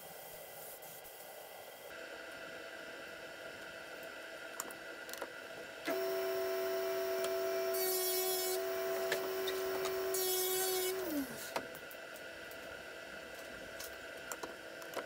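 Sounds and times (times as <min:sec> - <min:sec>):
table saw motor whining: 0:05.9 - 0:11.5
saw blade cutting plywood: 0:07.2 - 0:11.6.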